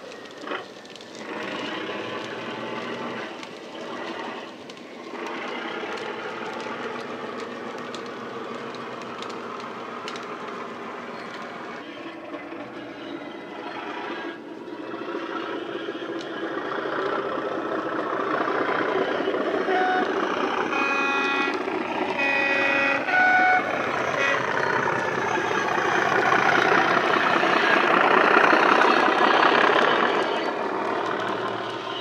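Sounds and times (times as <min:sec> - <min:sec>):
diesel engine through small speaker: 0:00.0 - 0:32.0
locomotive horn: 0:18.2 - 0:32.0.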